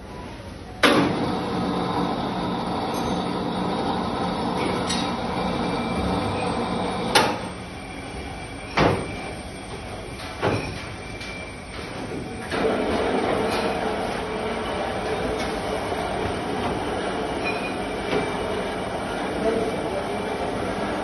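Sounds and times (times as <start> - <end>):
electric chain hoist humming: 1.1 - 8.7.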